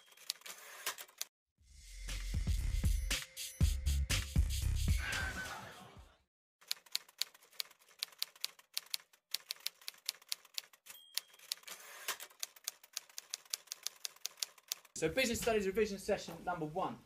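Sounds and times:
typewriter bell ringing: 0.0s - 0.6s, 10.8s - 12.1s
music: 1.6s - 6.2s.

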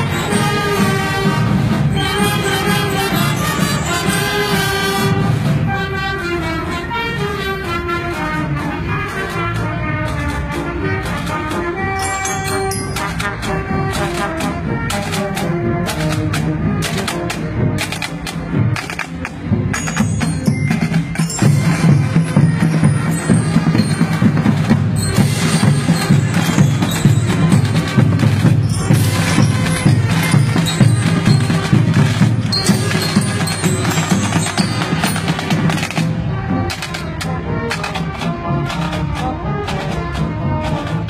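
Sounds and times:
snare drums: 0.0s - 6.7s, 7.7s - 41.0s
brass: 0.0s - 41.0s
marching band playing: 0.0s - 41.0s.

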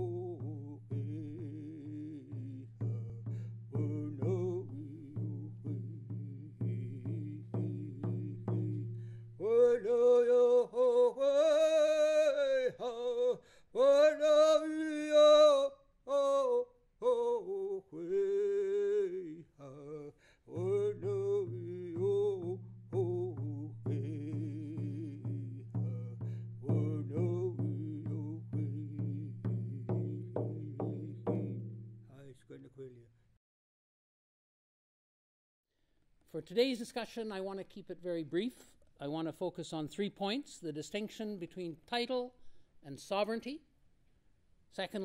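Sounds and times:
steady drumbeat: 0.0s - 9.4s, 20.6s - 32.3s
person singing: 0.0s - 31.8s.

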